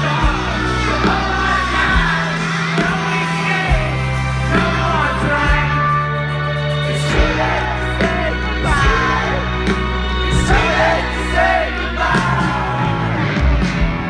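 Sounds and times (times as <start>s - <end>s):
person singing: 0.0s - 6.2s
bass line: 0.0s - 14.0s
live rock band: 0.0s - 14.0s.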